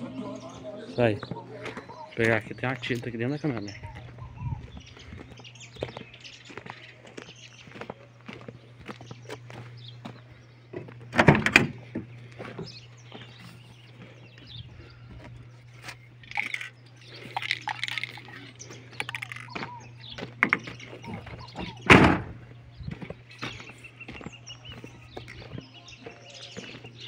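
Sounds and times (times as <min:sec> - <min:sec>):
low hum: 0:00.0 - 0:27.0
truck door slamming: 0:11.1 - 0:12.0, 0:21.6 - 0:22.4.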